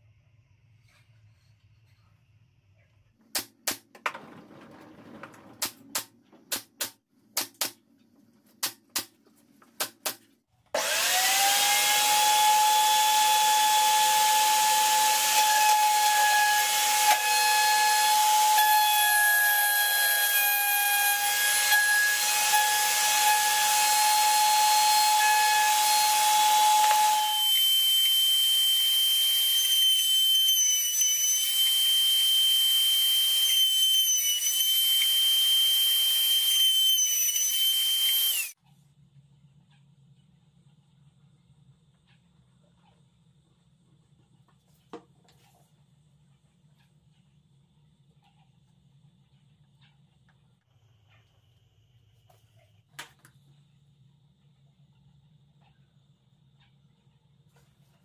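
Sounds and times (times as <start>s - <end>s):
nail gun firing: 3.3s - 4.0s
router high whine: 10.8s - 18.6s, 37.5s - 38.5s.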